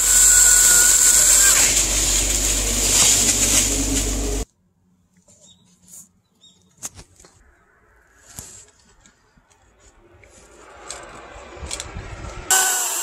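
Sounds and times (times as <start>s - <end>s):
rustling of rope and harness: 0.1s - 4.5s, 8.1s - 12.3s.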